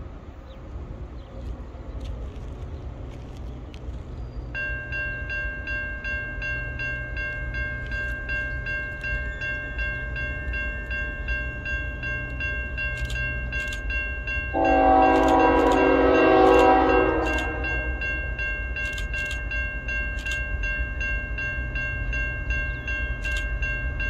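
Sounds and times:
low train rumble: 0.0s - 24.0s
crossing warning bell dinging: 4.5s - 24.0s
train horn chord: 14.5s - 18.3s.

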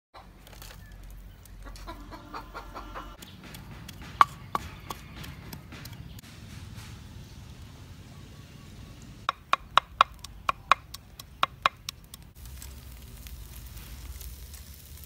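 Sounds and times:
chickens clucking: 1.6s - 6.2s
wooden pestle striking clay mortar: 3.2s - 6.2s, 9.3s - 12.3s.

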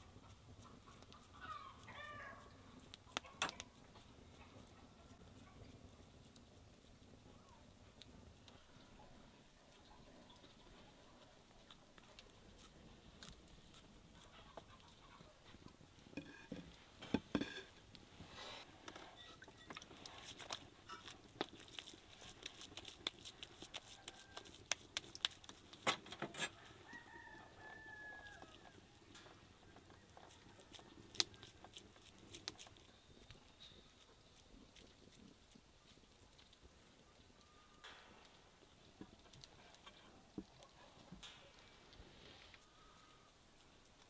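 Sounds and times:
chicken clucking: 0.6s - 2.4s, 14.2s - 15.5s.

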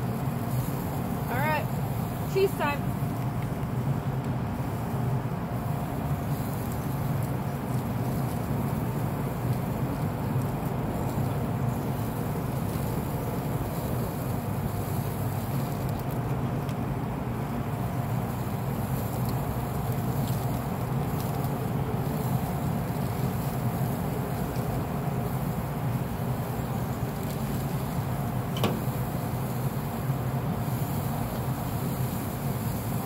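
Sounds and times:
grill fan humming: 0.0s - 33.0s.

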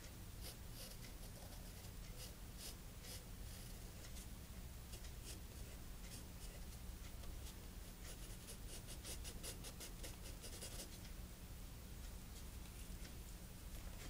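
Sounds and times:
steady low hum: 0.0s - 14.0s
pencil scratching on paper: 0.4s - 4.3s, 7.4s - 11.0s.

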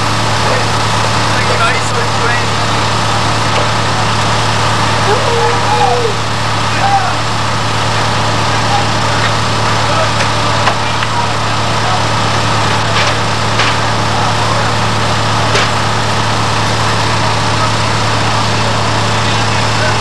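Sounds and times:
fire engine droning: 0.0s - 20.0s.

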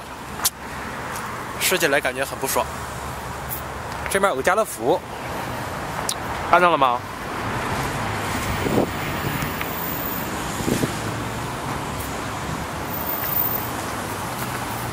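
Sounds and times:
road traffic hum: 0.0s - 14.9s.

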